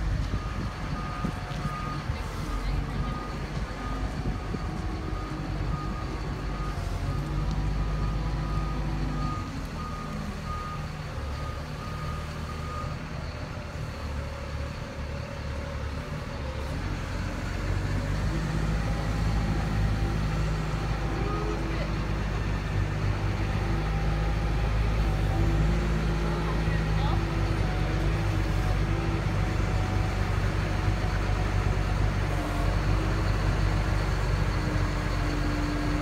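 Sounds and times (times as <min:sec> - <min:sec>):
forklift engine running: 0:00.0 - 0:36.0.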